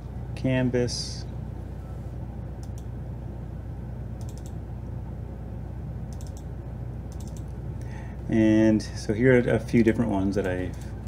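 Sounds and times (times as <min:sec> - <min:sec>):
steady low hum: 0:00.0 - 0:11.0
mouse and keyboard clicks: 0:04.2 - 0:04.6, 0:07.1 - 0:07.5.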